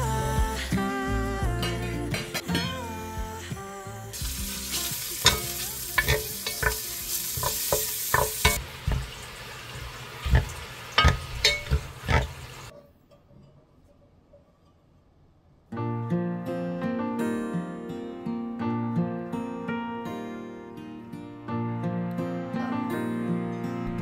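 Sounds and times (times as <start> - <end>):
background music: 0.0 - 8.6, 15.8 - 24.0
meat sizzling in a pot: 4.2 - 12.7
wooden spoon knocking on metal pot: 6.0 - 6.8, 7.4 - 9.2, 10.2 - 12.4.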